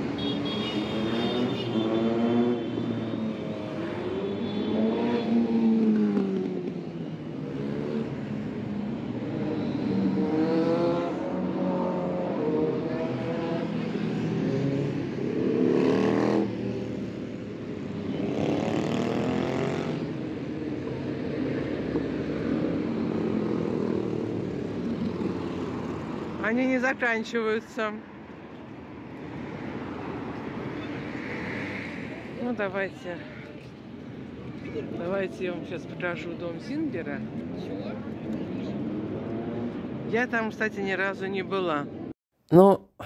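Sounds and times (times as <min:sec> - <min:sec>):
steady traffic: 0:00.0 - 0:42.9
motorcycles riding past: 0:00.8 - 0:20.4.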